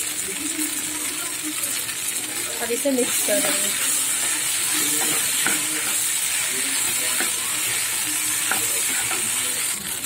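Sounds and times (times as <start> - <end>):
pasta sizzling in a frying pan: 0.0 - 10.0
spatula tapping and scraping pan: 3.0 - 9.4.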